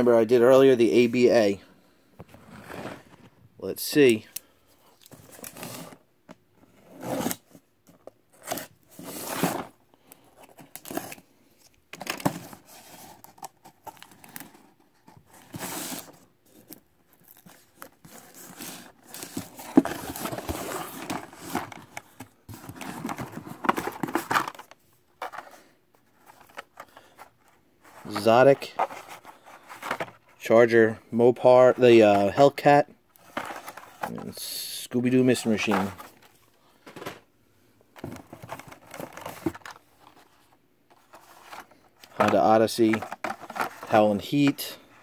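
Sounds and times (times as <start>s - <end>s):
cardboard flaps scraping and rustling: 2.3s - 3.4s, 17.4s - 25.5s.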